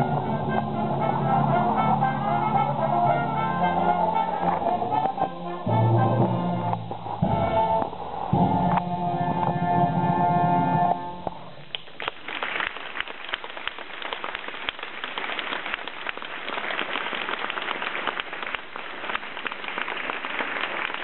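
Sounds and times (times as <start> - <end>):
audience applauding: 11.7 - 21.0.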